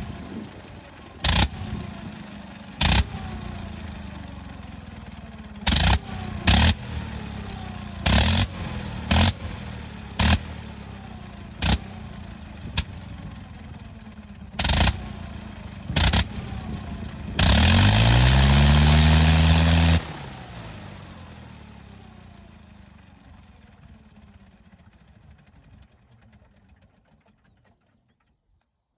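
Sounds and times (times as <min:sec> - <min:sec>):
propeller windmilling: 0:00.0 - 0:27.9
rotary engine firing in bursts: 0:00.0 - 0:28.1.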